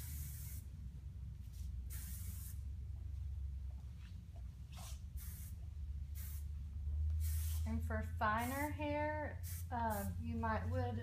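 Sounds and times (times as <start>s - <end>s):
aerosol spray hissing: 0.0s - 0.7s, 1.9s - 2.6s, 5.2s - 6.5s, 7.2s - 7.8s, 9.4s - 10.2s
low room hum: 0.0s - 11.0s.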